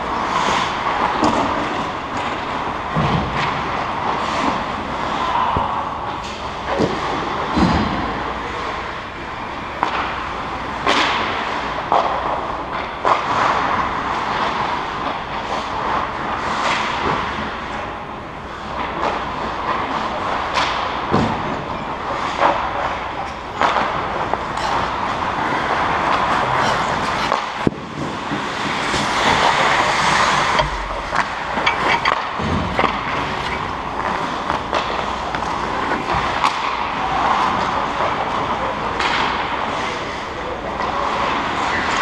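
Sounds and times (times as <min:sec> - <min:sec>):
hockey sticks and puck clacking: 0:00.0 - 0:42.0
skates scraping on ice: 0:23.6 - 0:40.2.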